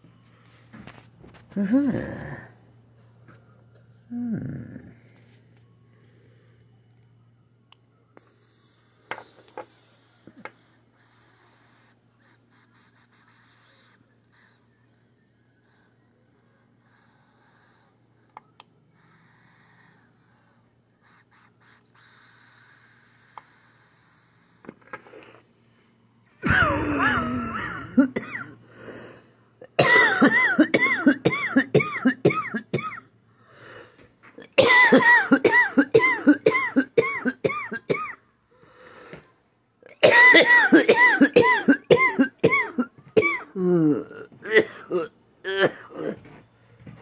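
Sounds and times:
person coughing hard: 26.4s - 28.6s, 29.6s - 33.0s, 34.5s - 38.2s, 39.9s - 46.3s.

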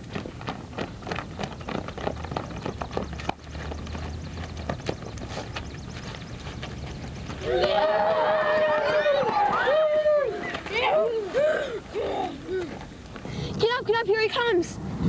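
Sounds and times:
children's footsteps on asphalt: 0.0s - 14.5s.

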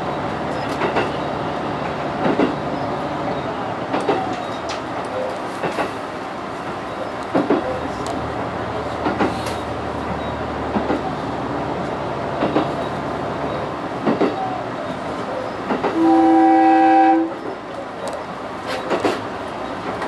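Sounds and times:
train running on rails: 0.0s - 20.0s
wheels clicking over rail joints: 0.5s - 2.8s, 7.2s - 11.2s, 11.8s - 14.5s, 15.2s - 16.0s, 17.7s - 20.0s
train horn: 15.9s - 17.4s.

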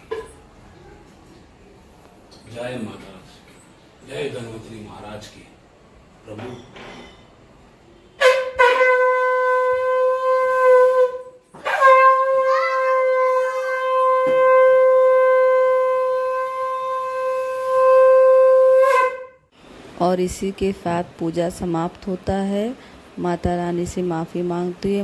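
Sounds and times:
conch shell blasts: 8.0s - 19.5s.

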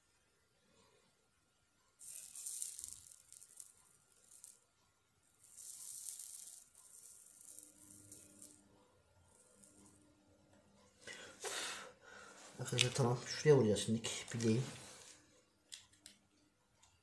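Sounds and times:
soldering iron sizzling on flux: 2.0s - 4.7s.

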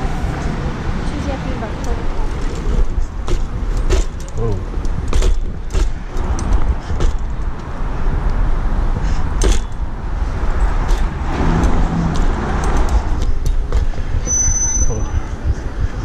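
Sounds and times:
wind rumble on microphone: 0.0s - 16.0s
bike parts rattling and clanking: 1.8s - 7.9s, 9.0s - 14.2s.

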